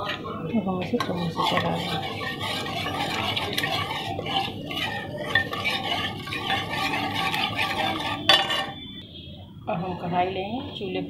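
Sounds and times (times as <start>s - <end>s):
thick liquid swishing: 0.9s - 8.8s.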